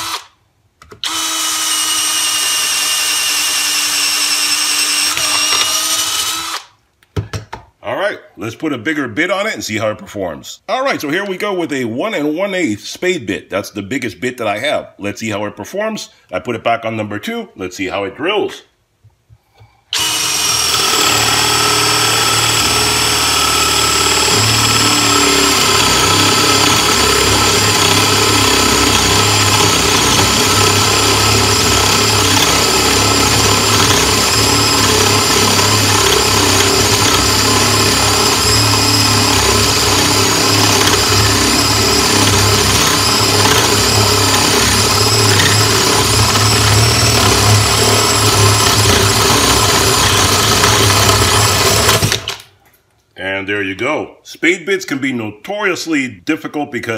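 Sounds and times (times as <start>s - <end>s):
cordless drill whining under load: 0.0s - 0.4s, 1.0s - 6.8s, 19.9s - 52.4s.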